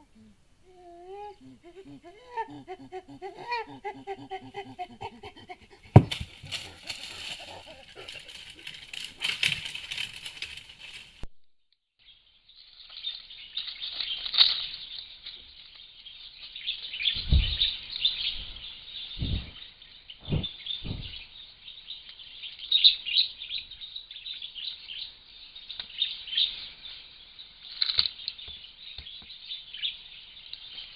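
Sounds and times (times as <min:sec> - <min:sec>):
birds chirping: 0:00.0 - 0:10.4
knocks and rubbing on microphone: 0:05.8 - 0:06.7.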